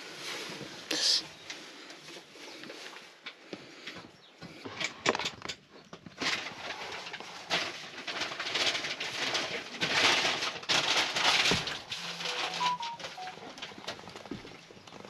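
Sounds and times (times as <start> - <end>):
rustling of fabric: 0.0 - 3.4, 6.0 - 15.0.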